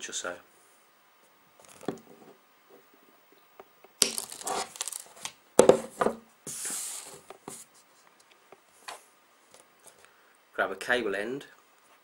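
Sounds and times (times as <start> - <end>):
plastic crinkle: 4.0 - 5.4.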